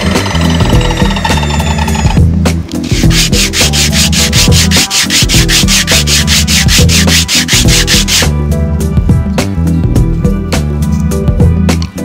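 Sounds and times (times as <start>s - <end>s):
hand sanding on sandpaper: 2.8s - 8.3s.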